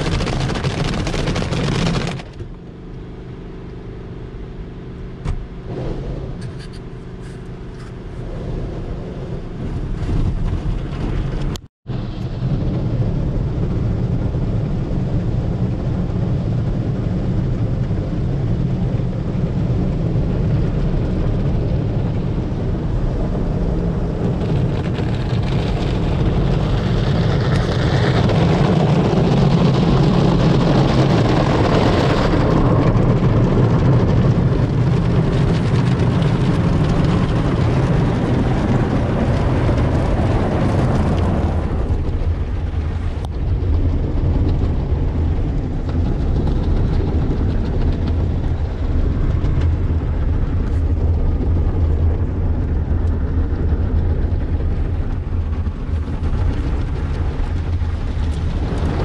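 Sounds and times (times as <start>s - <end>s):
car wash water spray and brushes: 0.0s - 18.2s, 19.0s - 44.4s.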